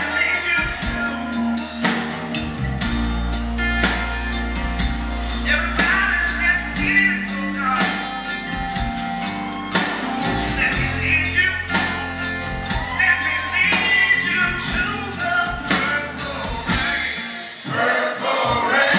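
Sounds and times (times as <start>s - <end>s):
man singing: 0.0s - 1.9s, 5.4s - 8.4s, 10.2s - 12.2s, 12.8s - 17.8s
drum kit beat: 0.0s - 18.9s
guitars: 0.0s - 18.9s
keyboard: 0.0s - 18.9s.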